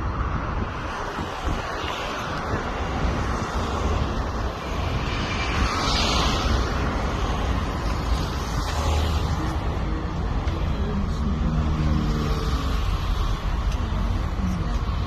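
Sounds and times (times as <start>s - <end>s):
wind buffeting microphone: 0.0s - 11.7s
bus engine rumble: 0.0s - 15.0s
road noise: 0.0s - 15.0s.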